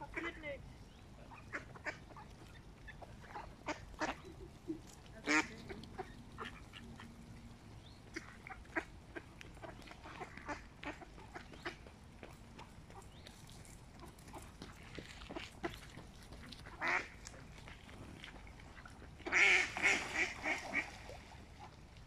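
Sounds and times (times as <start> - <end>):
ducks quacking: 0.0 - 0.5, 1.2 - 13.2, 14.0 - 21.8.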